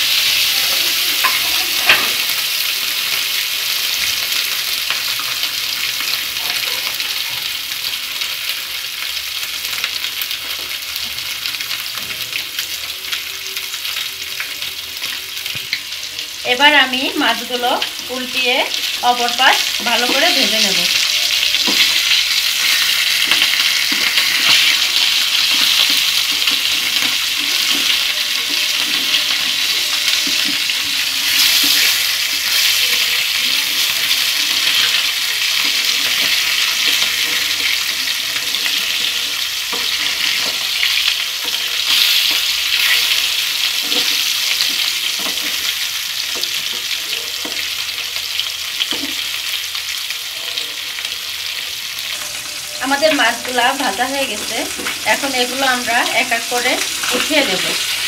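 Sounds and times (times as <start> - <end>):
fish sizzling in frying pan: 0.0 - 58.0
metal spatula scraping and tapping: 34.5 - 47.6.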